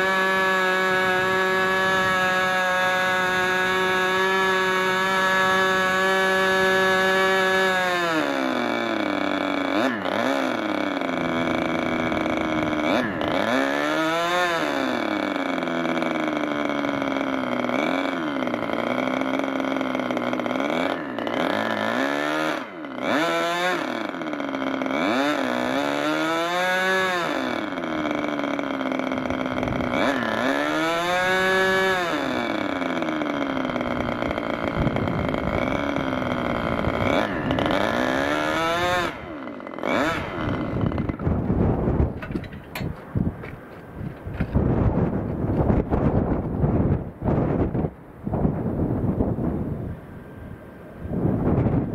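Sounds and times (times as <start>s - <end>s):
model engine revving: 0.0s - 47.7s.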